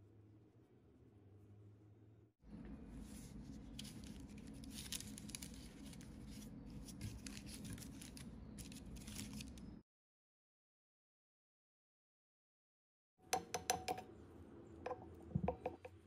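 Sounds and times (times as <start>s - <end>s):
pastry rustling: 3.0s - 9.8s
baking parchment crinkling: 3.1s - 9.8s.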